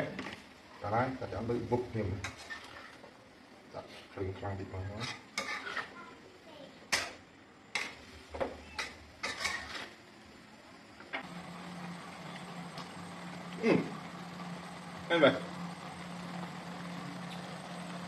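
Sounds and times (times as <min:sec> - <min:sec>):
metal ladle scraping a wok: 0:02.2 - 0:03.1, 0:04.9 - 0:06.0, 0:09.2 - 0:10.0
steady low hum: 0:08.9 - 0:18.0.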